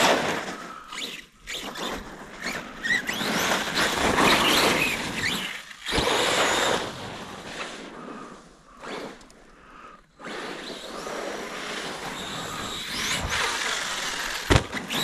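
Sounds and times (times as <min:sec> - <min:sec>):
electric motor whining: 0:00.9 - 0:07.0, 0:10.2 - 0:15.0.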